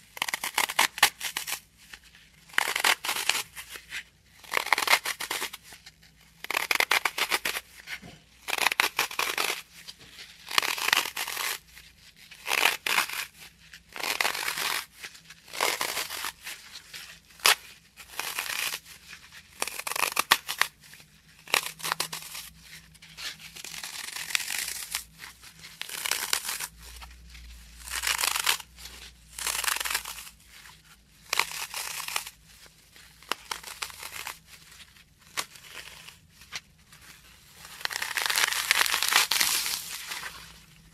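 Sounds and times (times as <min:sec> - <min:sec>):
floral foam crunching: 0:33.0 - 0:40.9.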